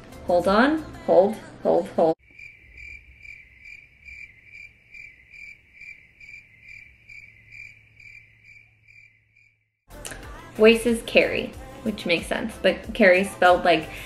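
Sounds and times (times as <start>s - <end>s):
cricket chirping: 2.2s - 9.7s.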